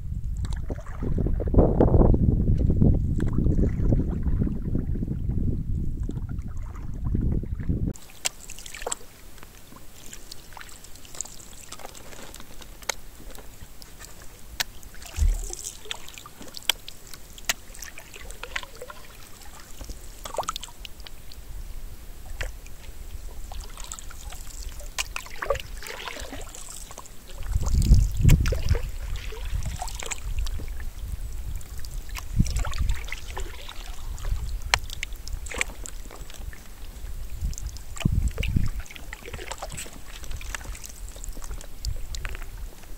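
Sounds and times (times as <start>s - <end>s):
water splashing off paddle: 8.0s - 21.4s, 22.2s - 42.9s
paddle knocking against hull: 14.9s - 16.1s.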